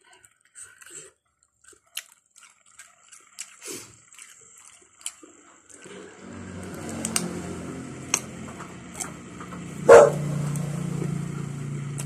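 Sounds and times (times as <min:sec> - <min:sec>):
faint sharp chewing clicks: 0:00.0 - 0:05.8
dog barking loudly: 0:09.8 - 0:10.4.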